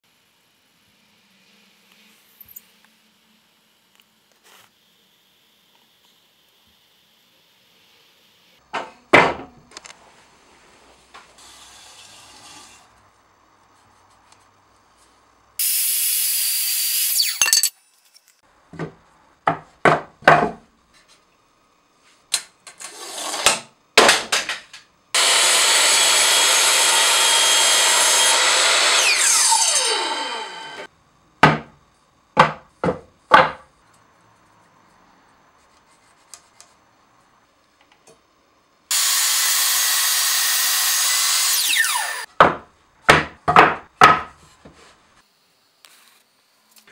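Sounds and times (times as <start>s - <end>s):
wooden boards and tools knocking: 8.7s - 9.5s, 18.7s - 20.6s, 23.3s - 25.4s, 31.4s - 31.8s, 32.4s - 33.7s, 42.4s - 44.8s
miter saw running: 25.2s - 30.9s, 38.9s - 42.3s.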